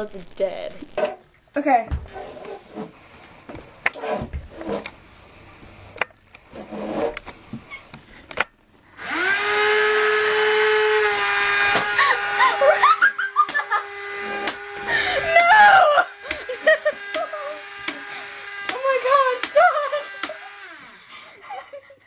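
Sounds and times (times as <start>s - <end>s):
toy car motor whining: 9.0s - 21.3s
sharp clicks: 19.4s - 19.6s.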